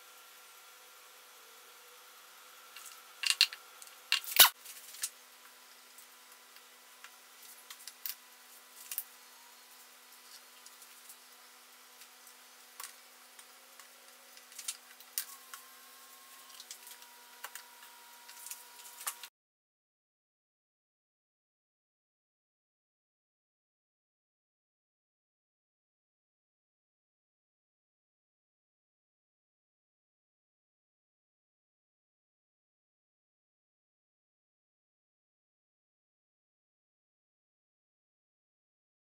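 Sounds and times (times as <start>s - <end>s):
clicks of motor parts handled: 2.8s - 5.1s.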